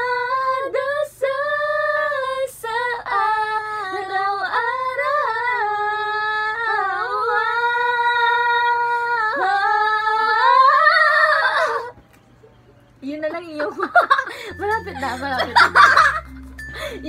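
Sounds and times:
women singing a capella: 0.0s - 12.0s.

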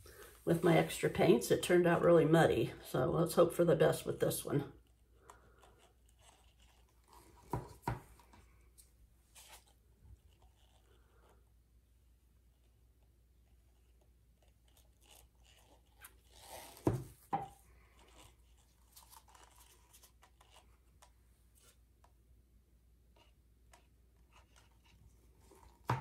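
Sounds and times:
plastic and paper cups crinkling: 14.6s - 21.2s.

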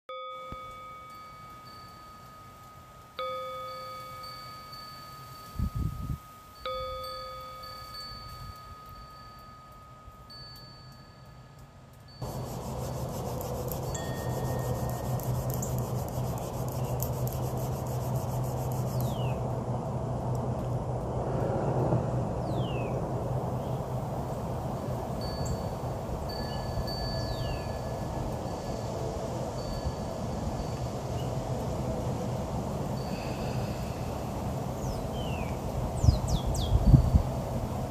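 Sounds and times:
metal chime ringing: 0.1s - 16.0s
outdoor background noise with hum: 0.2s - 37.9s.

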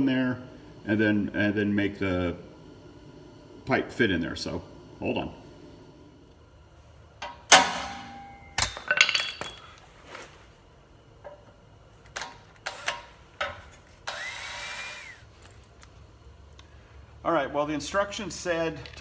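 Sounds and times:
metal tools clanking: 7.2s - 9.8s
drill whining: 14.0s - 15.2s.

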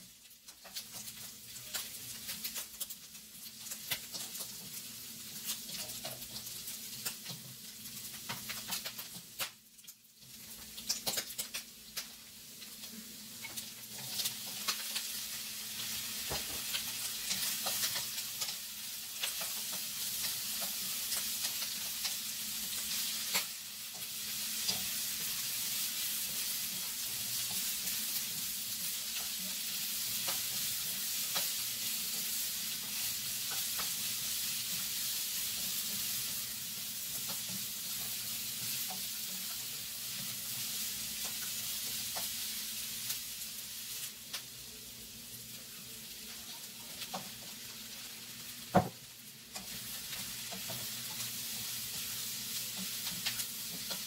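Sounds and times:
meat and onion sizzling in a wok: 0.0s - 54.0s
spatula scraping a pan: 49.6s - 54.0s.

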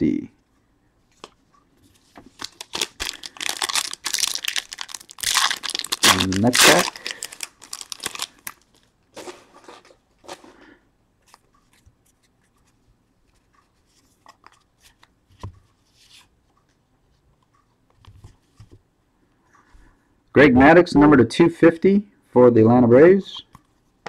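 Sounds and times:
cards clicking and rustling: 2.1s - 10.4s
card pack crinkling and tearing: 2.3s - 8.9s.

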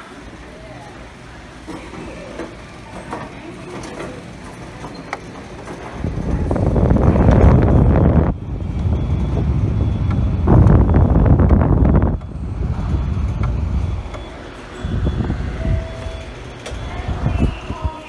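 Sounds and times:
fan wind noise on microphone: 0.0s - 18.0s.

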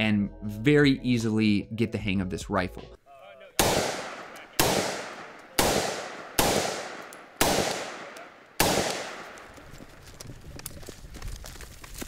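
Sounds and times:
rifle shots echoing: 3.6s - 9.7s.

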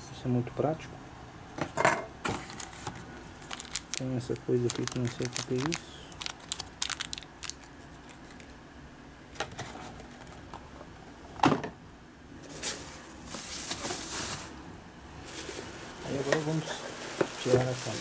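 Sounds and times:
plastic rustling: 2.4s - 8.6s, 12.5s - 14.6s, 15.2s - 18.0s
plastic bag crinkling: 2.5s - 8.6s, 15.3s - 18.0s.

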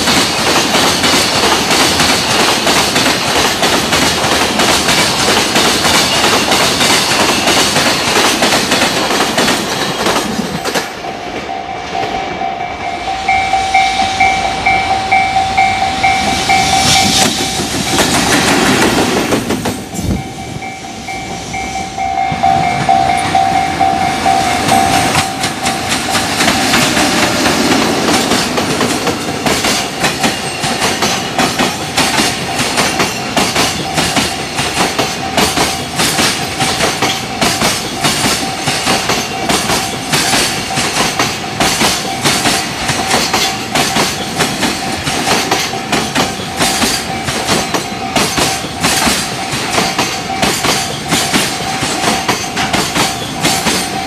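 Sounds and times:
freight train passing: 0.0s - 54.0s
level crossing warning bell: 9.8s - 18.3s, 19.8s - 54.0s.

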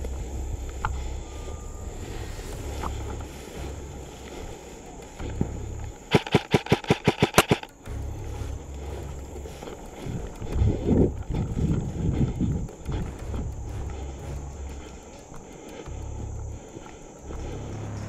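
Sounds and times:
footsteps rustling grass: 0.0s - 18.0s
airsoft rifle rapid fire: 6.1s - 7.8s.

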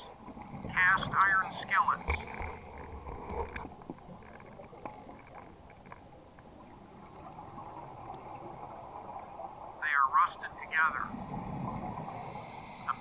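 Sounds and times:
low underwater rushing: 0.0s - 9.8s, 10.4s - 13.0s
faint clicks: 0.4s - 7.3s.

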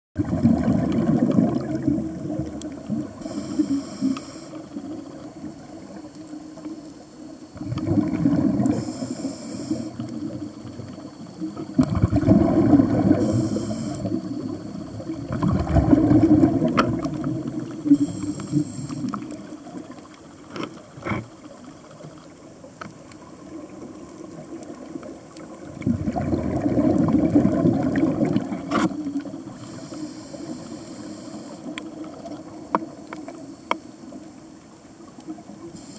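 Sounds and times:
exhaust bubbles gurgling: 0.2s - 6.7s, 7.5s - 20.1s, 23.2s - 29.9s
regulator inhale hiss: 2.8s - 7.7s, 8.4s - 15.1s, 17.0s - 19.8s, 28.9s - 32.1s, 33.1s - 34.3s, 35.6s - 35.9s.

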